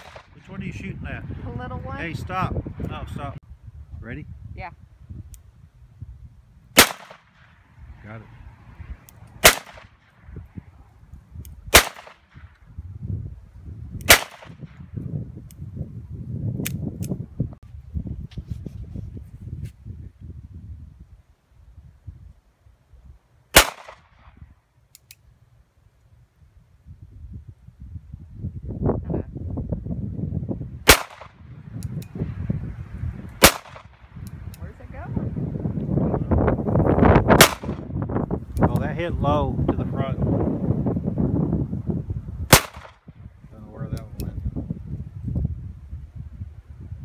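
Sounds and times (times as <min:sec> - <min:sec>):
gunshots: 0:00.0 - 0:00.4, 0:06.8 - 0:07.4, 0:09.4 - 0:09.9, 0:11.7 - 0:12.3, 0:14.1 - 0:14.6, 0:23.5 - 0:24.1, 0:30.9 - 0:31.4, 0:33.4 - 0:34.0, 0:37.4 - 0:37.9, 0:42.5 - 0:43.0.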